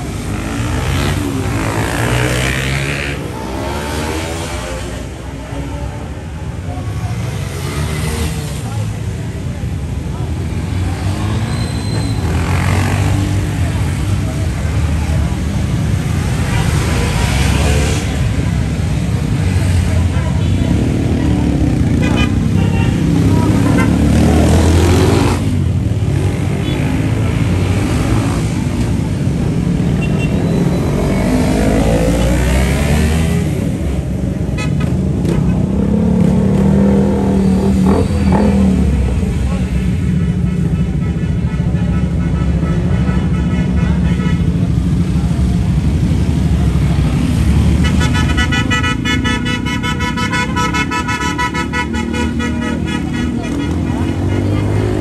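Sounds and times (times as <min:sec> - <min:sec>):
motorcycle engines revving: 0:00.0 - 0:55.0
motorcycle passing by: 0:23.0 - 0:28.8.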